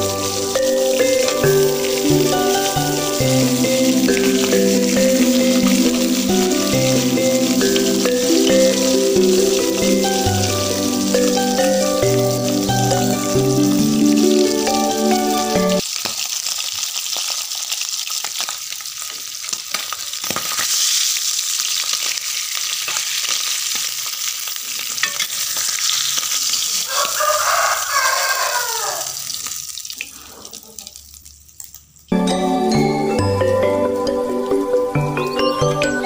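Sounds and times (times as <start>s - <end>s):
fish sizzling in hot oil: 0.0s - 32.1s
rooster crowing: 26.9s - 29.3s.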